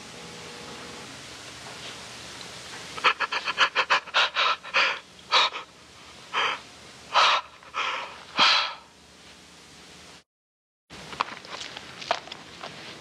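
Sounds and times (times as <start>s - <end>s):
man sobbing: 3.0s - 5.7s.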